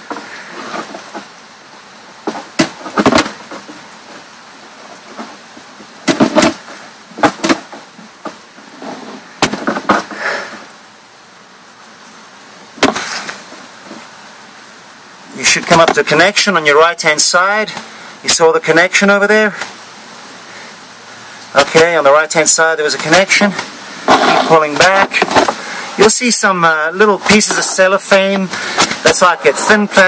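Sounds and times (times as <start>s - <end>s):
steady hiss: 0.0s - 30.0s
sharp knocks and clacks: 7.2s - 8.4s.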